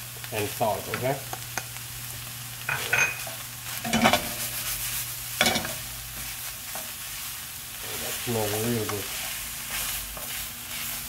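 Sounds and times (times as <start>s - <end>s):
meat sizzling in a frying pan: 0.0s - 11.0s
wooden spoon scraping mince: 7.9s - 11.0s.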